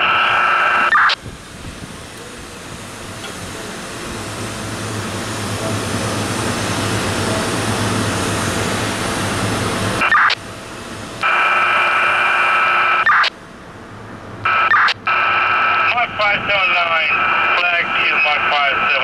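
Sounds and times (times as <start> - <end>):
high electronic tone: 0.0 - 1.2, 10.0 - 10.4, 11.2 - 13.3, 14.5 - 15.7
radio static hiss: 0.0 - 1.3, 9.9 - 10.5, 11.2 - 13.4, 14.4 - 19.0.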